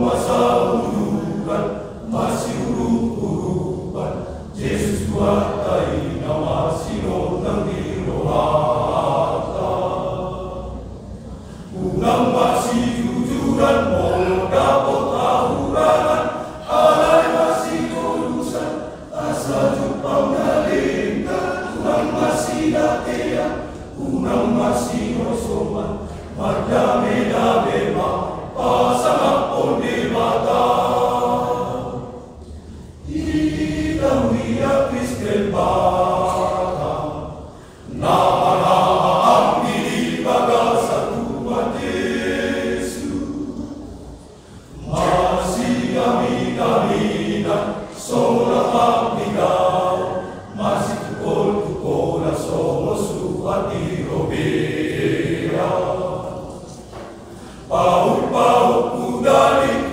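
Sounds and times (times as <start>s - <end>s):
men's choir singing a cappella: 0.0s - 59.9s.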